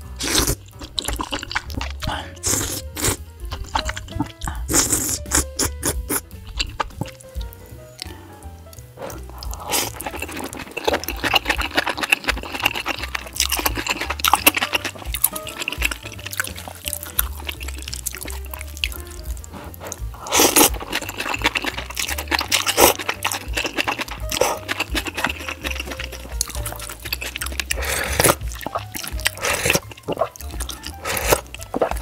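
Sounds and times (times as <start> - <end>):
slurping noodles: 0.0 - 7.2, 9.0 - 32.0
background music: 0.0 - 32.0
wet chewing: 0.0 - 32.0.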